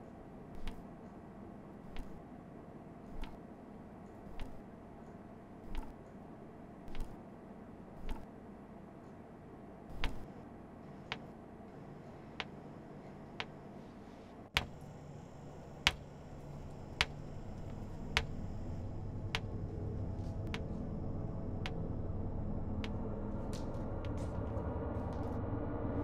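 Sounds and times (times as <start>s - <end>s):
faint hum: 0.0s - 26.0s
low drone: 14.6s - 26.0s.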